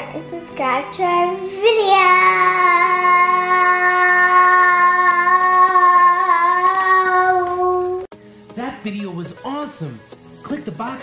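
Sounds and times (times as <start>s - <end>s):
child singing a long note: 1.6s - 8.1s.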